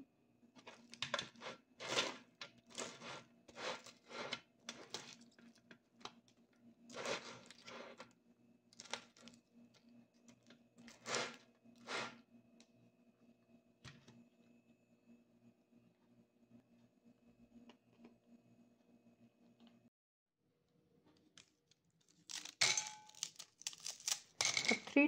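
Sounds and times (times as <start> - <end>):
wooden spoon scraping popcorn: 0.6 - 5.4, 6.9 - 8.1, 10.8 - 12.2.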